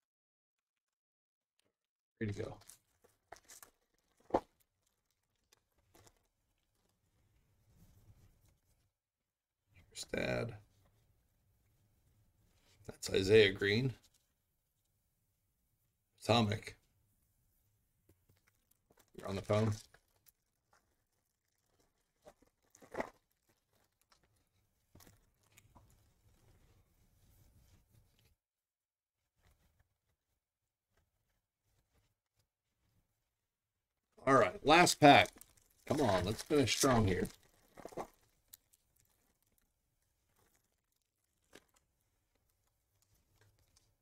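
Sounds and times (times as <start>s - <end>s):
foil wrapper tearing and crinkling: 2.7s - 6.3s, 19.0s - 24.4s, 34.7s - 44.0s.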